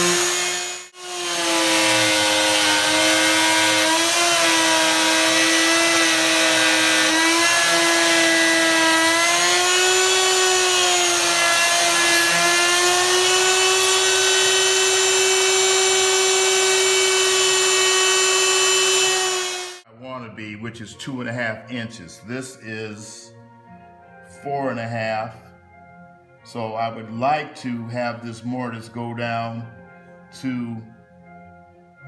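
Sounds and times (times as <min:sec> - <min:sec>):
router bit cutting wood: 0:00.0 - 0:19.8
router high whine: 0:00.0 - 0:19.8.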